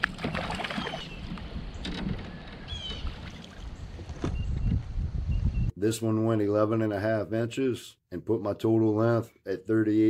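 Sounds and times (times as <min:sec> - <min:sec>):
water sloshing around kayak: 0:00.0 - 0:04.3
wind buffeting microphone: 0:00.8 - 0:05.7.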